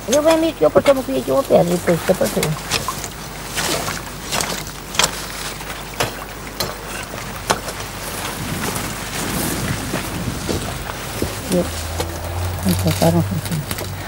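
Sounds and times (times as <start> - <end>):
maize leaves rustling: 0.0 - 14.0.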